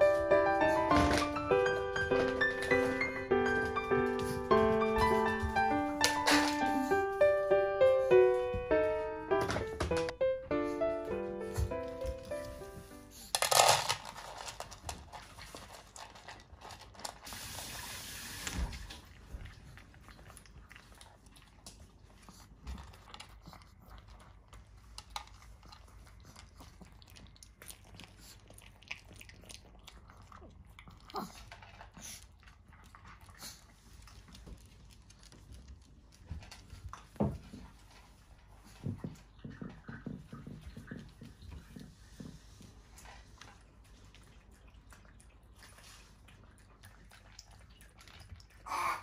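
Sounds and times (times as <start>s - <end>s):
dog eating from metal bowl: 13.2s - 48.9s.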